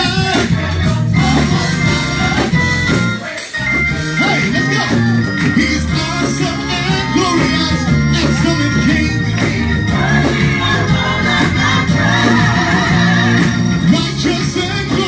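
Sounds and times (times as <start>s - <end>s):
gospel choir singing: 0.0s - 15.0s
instrumental accompaniment: 0.0s - 15.0s
lead vocalist singing: 0.0s - 15.0s.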